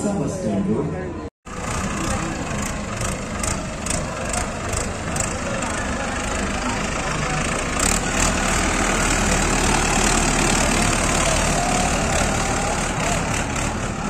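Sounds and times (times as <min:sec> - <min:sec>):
people talking: 0:00.0 - 0:07.8
tractor diesel engine running: 0:01.5 - 0:14.0.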